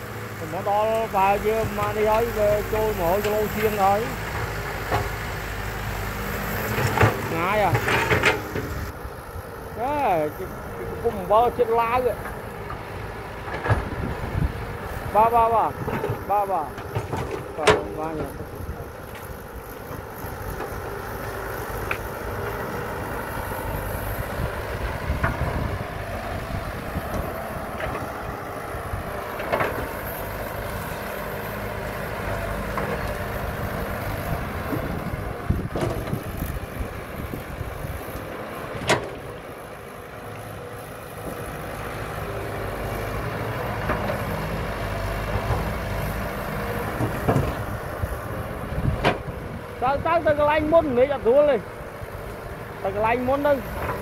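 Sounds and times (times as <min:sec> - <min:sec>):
excavator diesel engine running: 0:00.0 - 0:54.0
machine knocks and clanks: 0:06.7 - 0:08.9, 0:15.8 - 0:18.4, 0:46.9 - 0:47.7.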